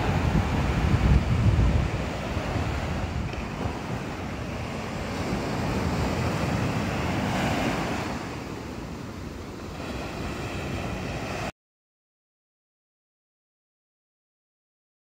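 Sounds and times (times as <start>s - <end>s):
ocean surf breaking: 0.0s - 11.5s
wind on microphone: 0.0s - 11.5s.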